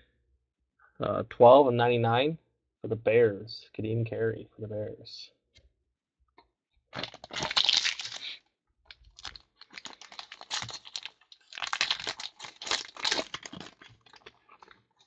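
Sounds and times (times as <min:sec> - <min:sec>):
foil pack crinkling: 0:07.0 - 0:15.0.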